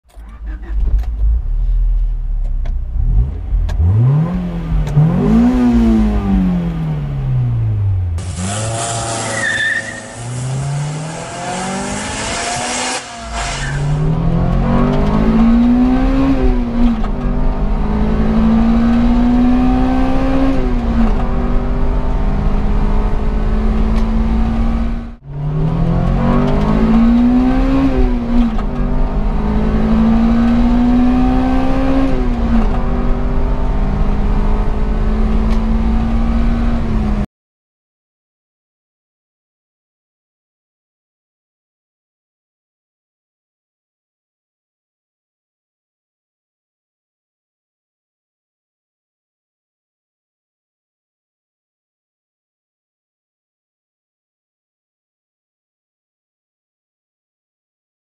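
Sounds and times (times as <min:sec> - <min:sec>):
car engine revving hard: 0:02.9 - 0:37.3.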